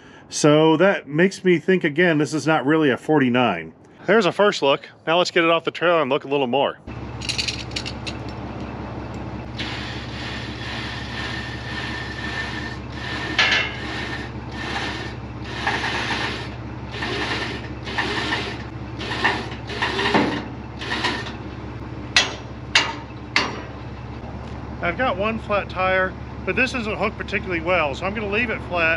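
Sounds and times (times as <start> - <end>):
steady low hum: 0.0 - 28.9
winch cable rasping over pulley: 9.4 - 21.8.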